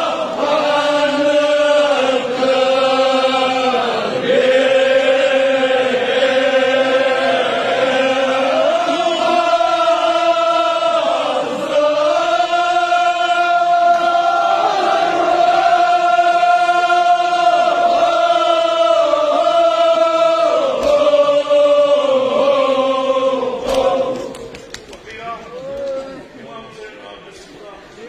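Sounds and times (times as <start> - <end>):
men chanting together: 0.0 - 24.4.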